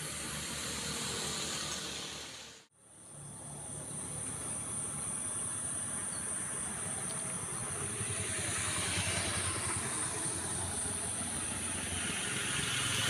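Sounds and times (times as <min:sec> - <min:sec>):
insects droning: 0:00.0 - 0:13.0
motorcycle engine: 0:04.2 - 0:13.0.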